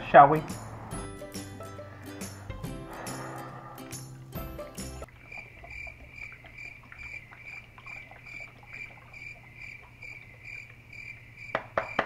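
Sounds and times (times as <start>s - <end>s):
low hum: 0.0s - 5.2s
cricket chirping: 5.1s - 12.0s
sharp knocks: 11.5s - 12.0s.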